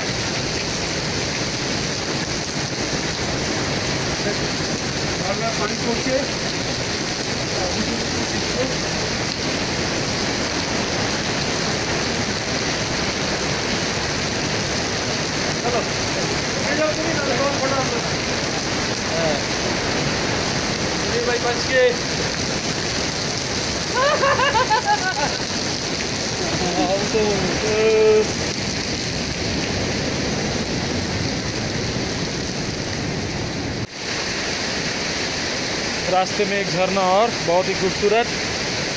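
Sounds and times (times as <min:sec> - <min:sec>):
waterfall rushing and splashing: 0:00.0 - 0:38.9.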